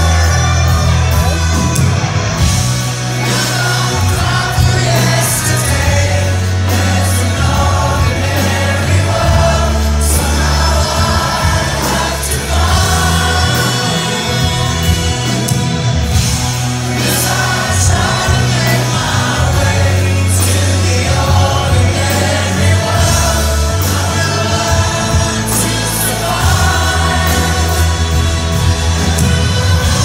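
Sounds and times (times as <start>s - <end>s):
man singing lead vocal: 0.0s - 1.8s, 3.1s - 15.8s, 16.8s - 30.0s
live rock band playing: 0.0s - 30.0s.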